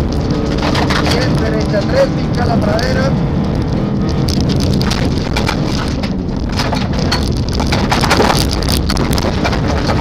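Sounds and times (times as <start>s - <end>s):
car engine and tyre rumble: 0.0s - 10.0s
gravel rattling against car underside: 0.0s - 10.0s.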